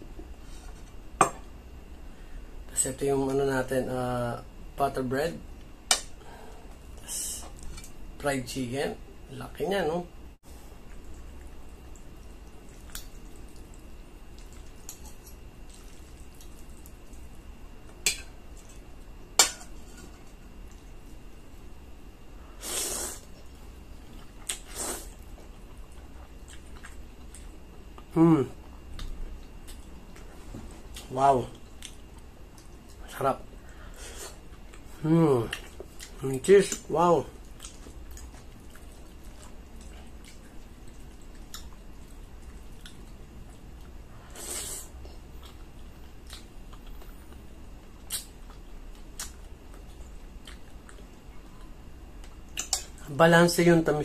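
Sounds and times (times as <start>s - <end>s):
person chewing food: 10.7s - 19.1s, 23.2s - 33.0s, 33.6s - 36.2s, 37.3s - 53.0s
mouth clicks of chewing: 48.1s - 51.0s.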